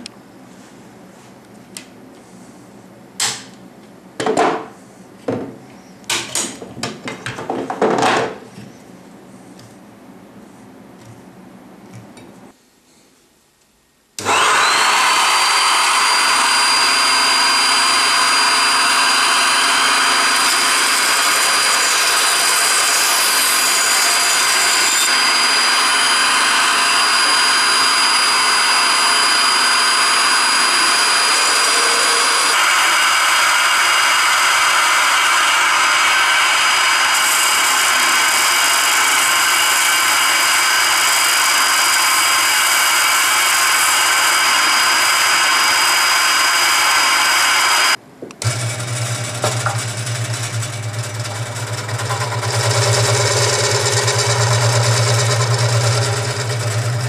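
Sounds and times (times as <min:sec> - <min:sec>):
bench sander on wood: 0:14.2 - 0:57.0
dust extraction vacuum whine: 0:14.2 - 0:57.0
scroll saw cutting wood: 0:14.2 - 0:57.0.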